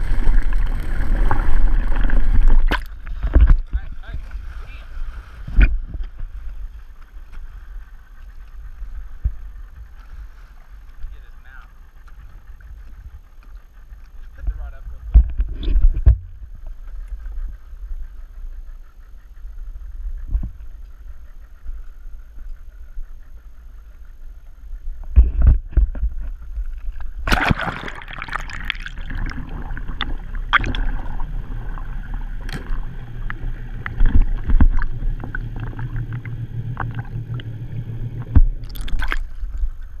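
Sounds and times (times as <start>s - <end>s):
water splash: 0.0s - 3.8s, 27.2s - 39.6s
underwater clicks: 0.0s - 3.9s, 25.0s - 40.0s
low hum: 0.0s - 40.0s
muffled underwater wash: 0.0s - 40.0s.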